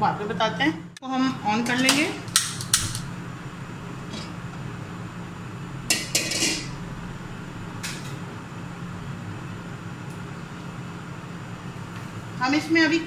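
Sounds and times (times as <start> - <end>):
cookware clinking and rattling: 5.9 - 6.7.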